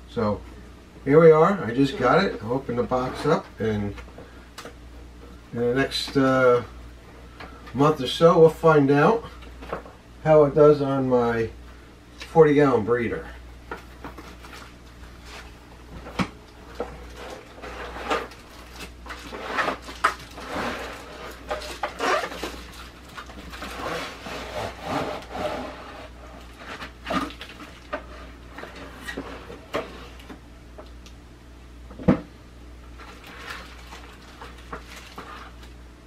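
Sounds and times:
cardboard and plastic rustling: 13.7 - 30.4, 33.0 - 35.8.

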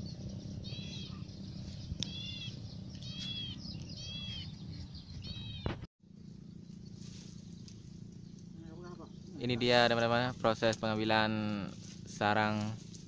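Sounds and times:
dove nestling squeaking: 0.0 - 5.8
low outdoor background: 0.0 - 13.0.

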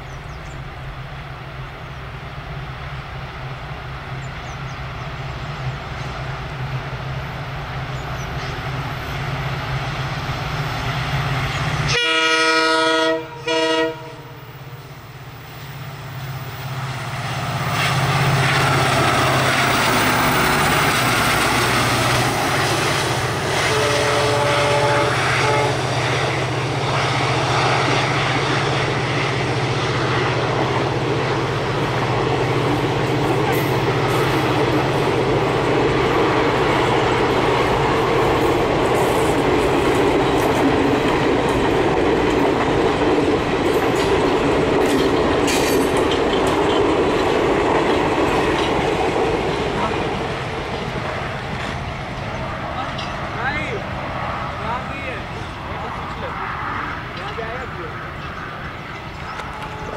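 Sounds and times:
diesel locomotive engine drone: 0.0 - 59.9
train horn blasts: 11.8 - 14.8, 23.5 - 26.0, 59.3 - 59.9
wheels on rails: 30.2 - 53.2.

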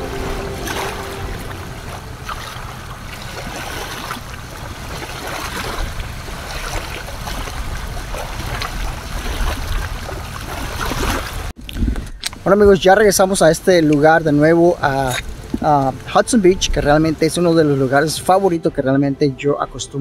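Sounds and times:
small waves lapping on sand: 0.0 - 11.6
wind rumbling on microphone: 0.0 - 17.7.

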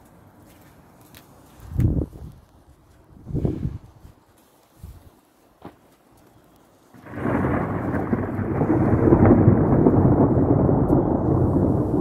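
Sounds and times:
loud thunder rumble: 7.0 - 12.0.

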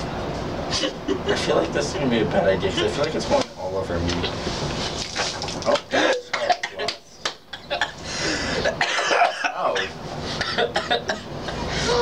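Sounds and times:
man coughing: 5.9 - 6.9, 8.6 - 12.0
man clearing throat: 8.7 - 12.0.

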